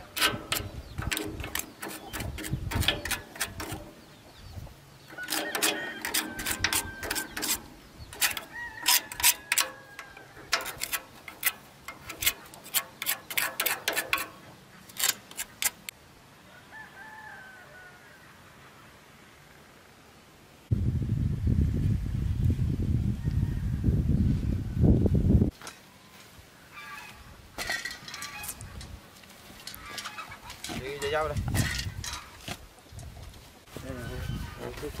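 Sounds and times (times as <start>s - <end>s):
knife scraping metal frame: 0.0s - 4.2s, 5.0s - 15.9s, 26.8s - 29.0s, 29.6s - 32.6s.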